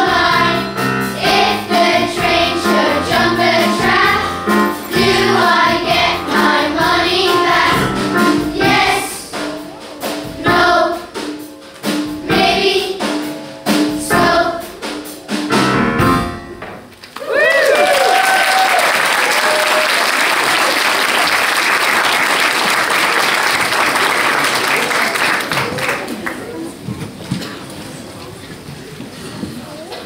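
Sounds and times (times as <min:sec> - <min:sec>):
children's choir singing: 0:00.0 - 0:15.1.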